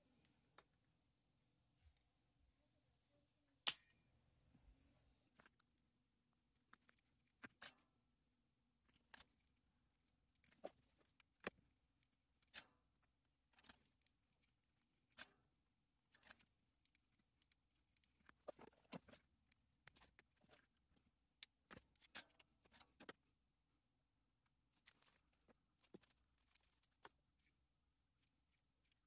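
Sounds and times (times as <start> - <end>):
fingers clicking and tapping small parts: 5.4 - 23.4, 24.4 - 29.0.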